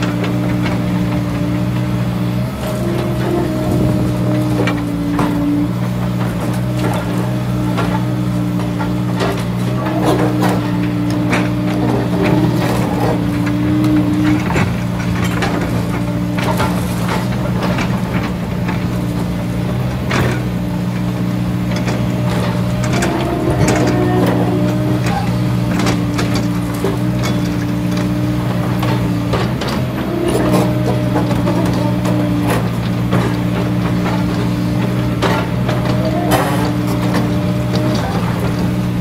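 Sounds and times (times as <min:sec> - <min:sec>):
excavator diesel drone: 0:00.0 - 0:39.0.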